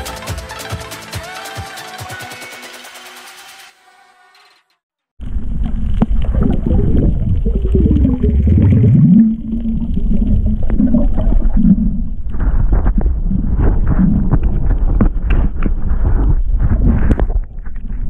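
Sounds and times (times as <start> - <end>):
underwater rumble of moving water: 5.2 - 18.0.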